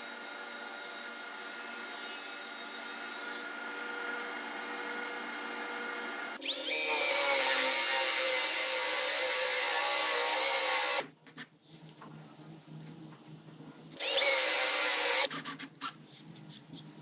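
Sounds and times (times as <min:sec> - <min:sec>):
cordless drill boring into wood: 0:06.4 - 0:11.0, 0:14.0 - 0:15.3.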